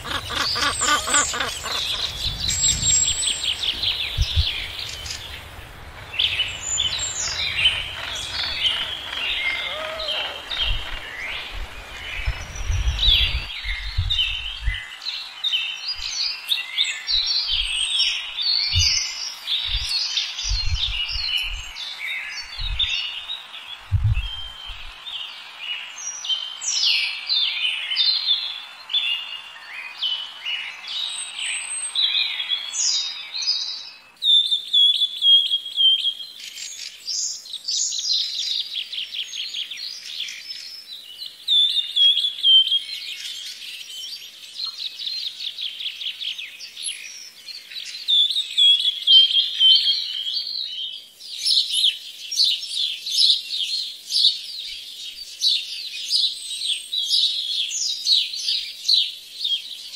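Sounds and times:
sharp bird calls: 0.0s - 15.0s
background hiss: 0.0s - 59.9s
small birds chirping: 0.0s - 59.9s.

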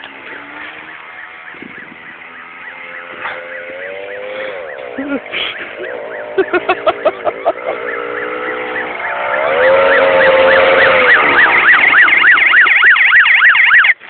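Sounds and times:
siren sweeping up and down: 0.0s - 14.0s.

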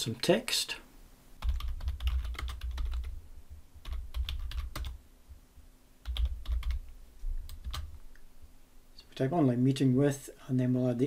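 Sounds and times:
typing on a computer keyboard: 1.4s - 3.1s, 3.8s - 5.0s, 6.0s - 6.9s, 7.5s - 7.9s.

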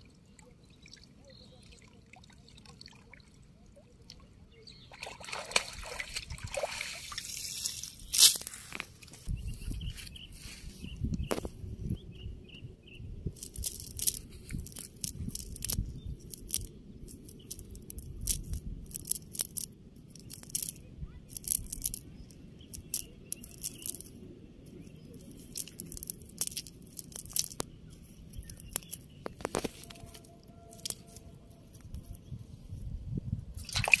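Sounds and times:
net mesh rustling and crackling: 13.4s - 22.0s, 24.9s - 32.2s.

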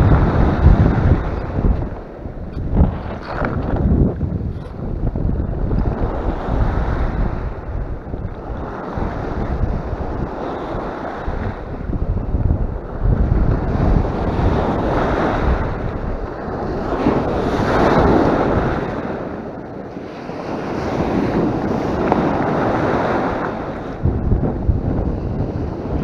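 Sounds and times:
wind rumbling on microphone: 0.0s - 26.0s
surf breaking on rocks: 20.0s - 26.0s.

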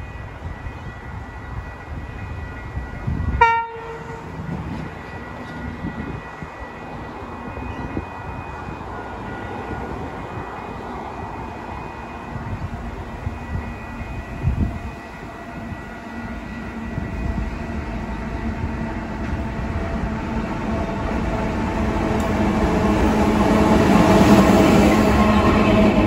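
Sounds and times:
diesel locomotive engine drone: 0.0s - 26.0s.

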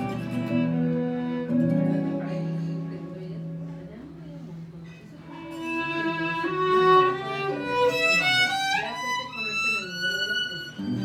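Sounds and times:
double bass: 0.0s - 3.8s
violin melody: 0.0s - 4.0s, 5.3s - 11.0s
acoustic guitar: 0.0s - 9.7s, 10.3s - 11.0s.

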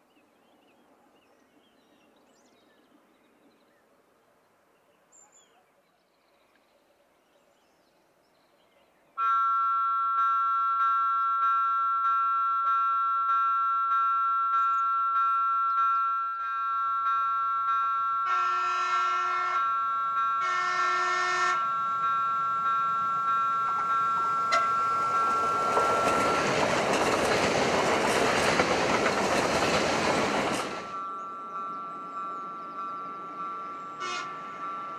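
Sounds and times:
train horn blasts: 9.2s - 26.4s, 33.7s - 34.9s
bell-like warning ringing: 9.2s - 34.9s.

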